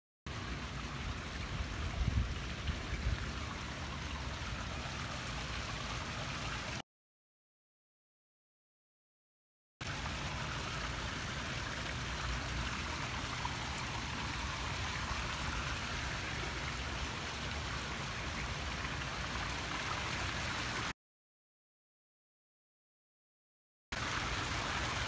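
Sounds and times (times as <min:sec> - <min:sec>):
fountain water splashing: 0:00.3 - 0:06.8, 0:09.8 - 0:20.9, 0:24.0 - 0:25.0.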